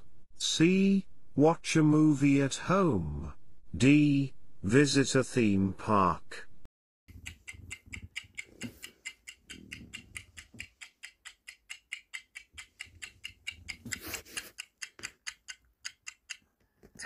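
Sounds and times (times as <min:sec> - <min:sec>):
quick clock ticking: 0:07.1 - 0:16.4.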